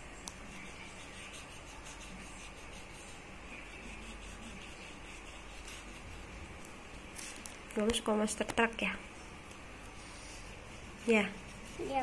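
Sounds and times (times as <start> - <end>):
crayon scratching on paper: 0.3 - 6.6, 10.0 - 12.0.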